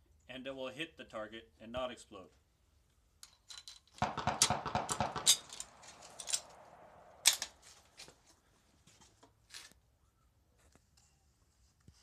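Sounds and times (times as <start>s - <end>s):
rifle bolt clicks and rattles: 3.2s - 6.6s, 7.2s - 7.6s.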